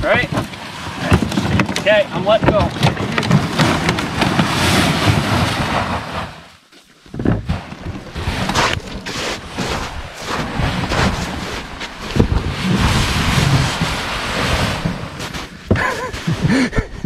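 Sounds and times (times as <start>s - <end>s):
sled scraping through snow: 0.0s - 6.5s, 7.4s - 17.0s
wind buffeting microphone: 7.2s - 17.0s.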